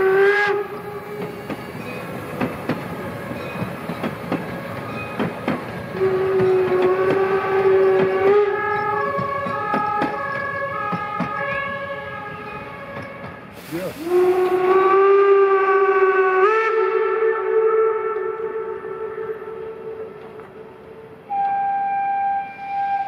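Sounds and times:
steam hissing: 0.0s - 8.7s, 13.2s - 15.1s
steam locomotive whistle: 0.0s - 23.0s
coach wheels clicking: 0.7s - 11.8s.

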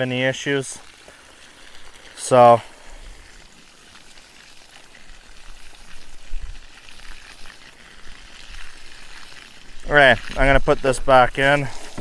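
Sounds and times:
water spattering onto grass: 0.0s - 12.0s.

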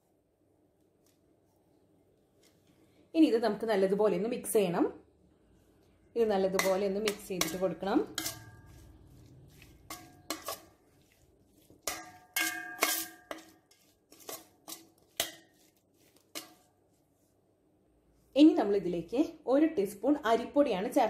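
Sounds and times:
metal spoon scraping steel bowl: 6.3s - 16.7s.

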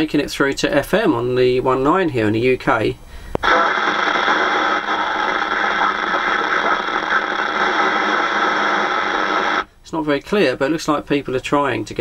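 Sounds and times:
radio static hiss: 3.4s - 9.7s
weak distant radio stations: 3.4s - 9.7s.

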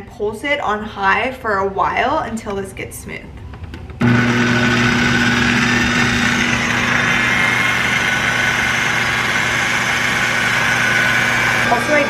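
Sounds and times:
food processor motor running: 4.0s - 12.0s.

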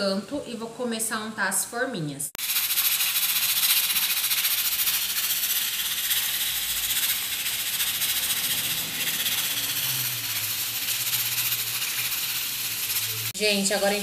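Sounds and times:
pressure cooker valve rattle: 2.4s - 13.4s
pressure cooker steam hiss: 2.4s - 14.0s.

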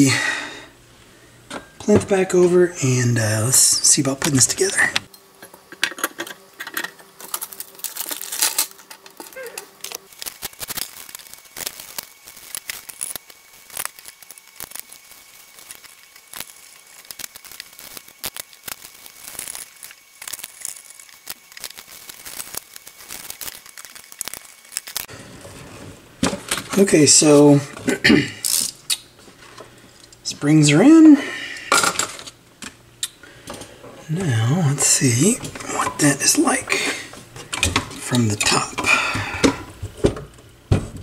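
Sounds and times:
paper crinkling: 7.1s - 26.0s.

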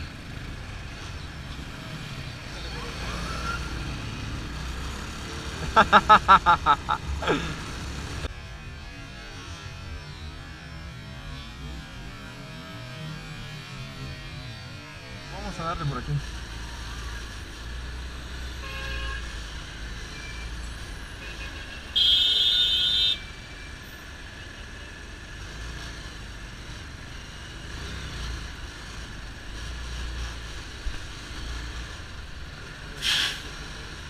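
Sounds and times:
surrounding traffic: 0.0s - 34.0s
motorcycle engine rumbling: 3.8s - 8.3s
short loud hiss: 33.0s - 33.4s.

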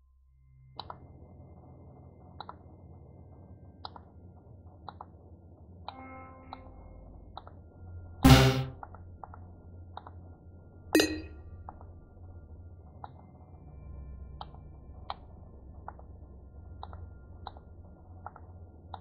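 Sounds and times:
low hum: 0.0s - 19.0s
soft irregular clicks: 3.8s - 7.6s, 14.3s - 19.0s
ringing electronic hit: 8.2s - 8.8s, 11.0s - 11.4s.

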